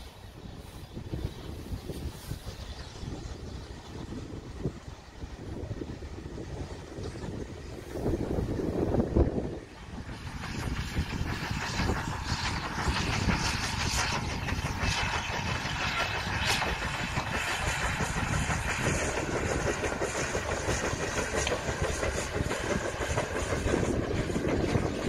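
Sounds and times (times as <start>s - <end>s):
locomotive running: 0.0s - 25.0s.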